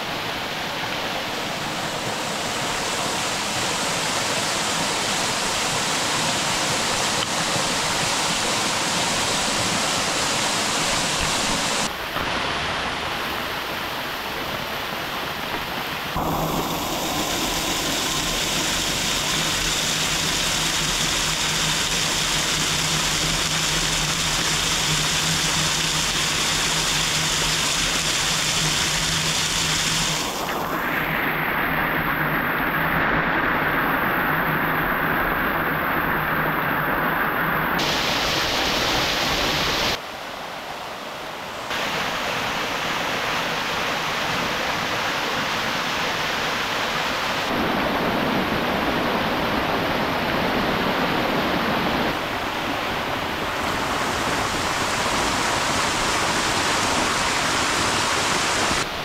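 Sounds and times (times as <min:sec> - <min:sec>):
rushing water: 0:00.0 - 0:59.0
low steady hum: 0:16.0 - 0:37.8.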